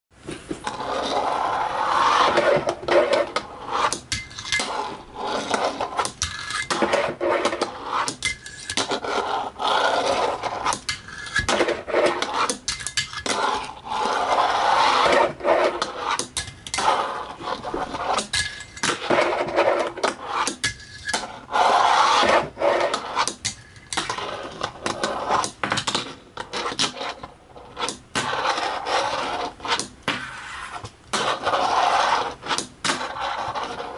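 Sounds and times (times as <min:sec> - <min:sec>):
fingerboard wheels rolling on wood: 0:00.3 - 0:33.9.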